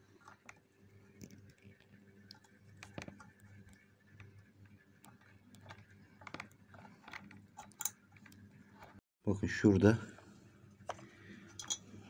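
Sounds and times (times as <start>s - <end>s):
clicks and knocks of handling parts: 2.3s - 9.0s, 10.8s - 12.0s.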